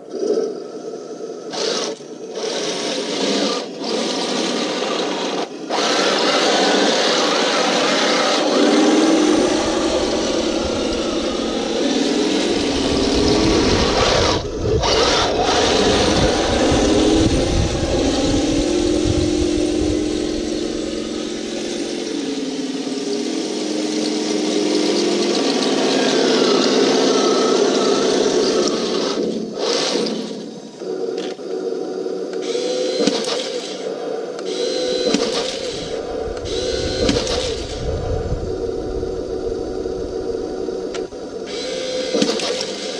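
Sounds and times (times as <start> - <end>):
electric motors whirring: 0.0 - 42.9
simulated engine note: 8.3 - 26.1, 34.6 - 42.2.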